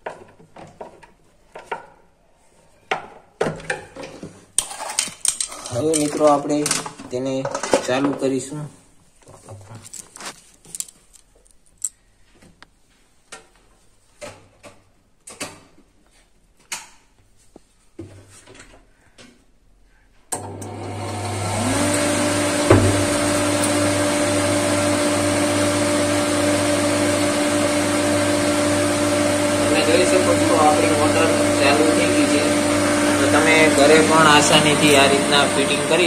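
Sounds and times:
flour mill motor humming: 0:20.3 - 0:36.0.

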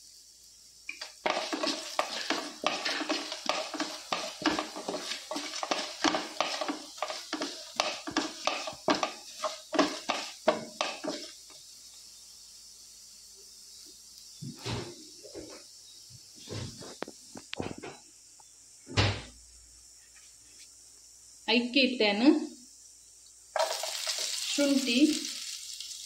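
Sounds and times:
seeds rattling: 0:00.9 - 0:11.4, 0:23.6 - 0:26.0
wooden spatula scraping metal pan: 0:00.9 - 0:11.4.

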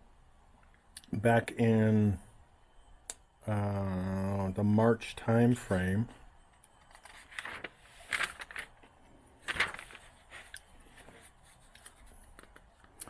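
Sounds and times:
notebook pages rustling: 0:06.8 - 0:13.0.

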